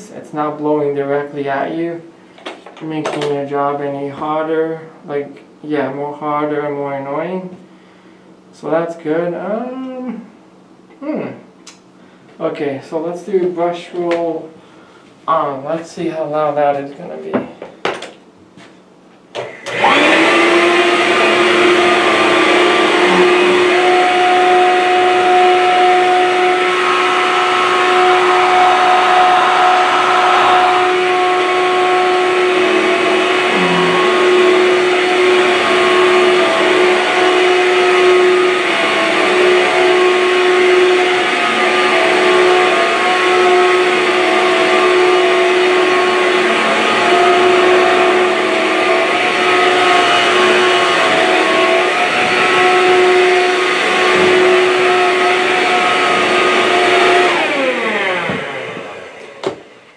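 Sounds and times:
vacuum motor humming: 0:19.3 - 0:59.9.

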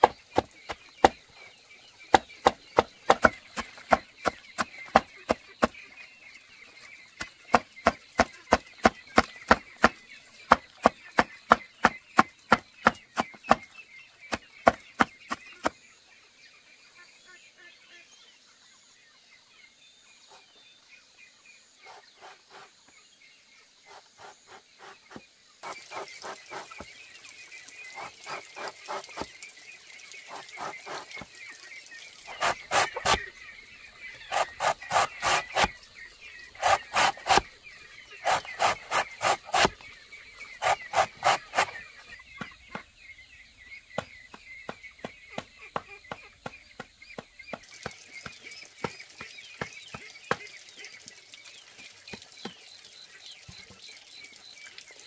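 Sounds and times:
blade chopping bamboo: 0:00.0 - 0:01.2, 0:02.1 - 0:05.8, 0:07.2 - 0:13.7, 0:32.3 - 0:33.3, 0:34.3 - 0:35.8, 0:36.5 - 0:37.5, 0:38.2 - 0:39.8, 0:40.6 - 0:41.8.

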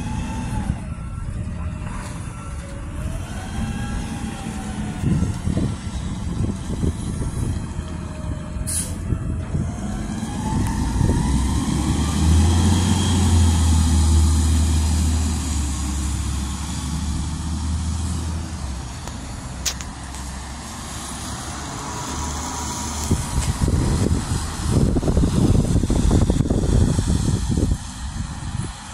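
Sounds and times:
garbage truck engine rumbling: 0:00.0 - 0:28.9
sharp click: 0:19.6 - 0:19.9.

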